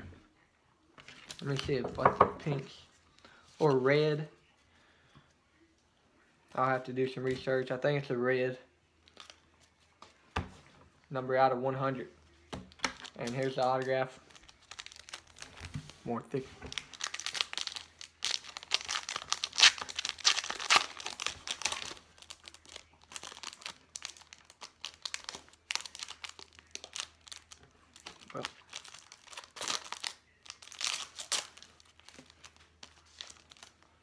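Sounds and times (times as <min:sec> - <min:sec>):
wrapper and cards rustling: 0:12.2 - 0:34.0
foil pack crinkling and tearing: 0:12.9 - 0:16.1, 0:16.7 - 0:34.0.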